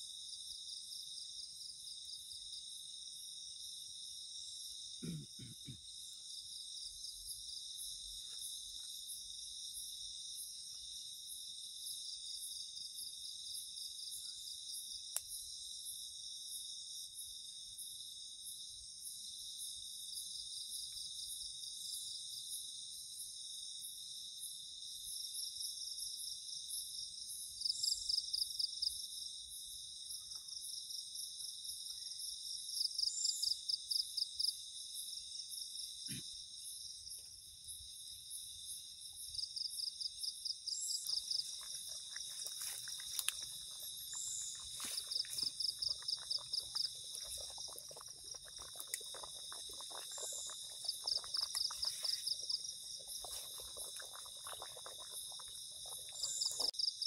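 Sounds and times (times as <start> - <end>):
insects trilling: 27.3 - 57.0.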